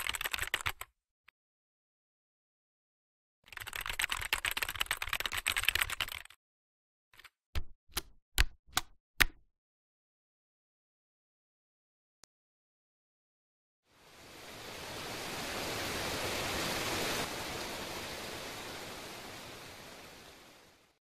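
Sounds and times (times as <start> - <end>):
keyboard typing: 0.0 - 0.9, 3.5 - 6.4.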